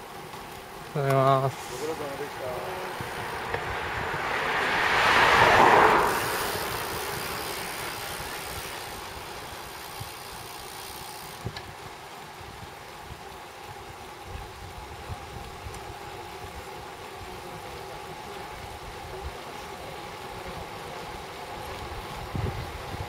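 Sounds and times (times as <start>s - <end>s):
bicycle road rumble: 0.0s - 23.0s
wind rushing over microphone: 1.6s - 10.3s, 21.8s - 23.0s.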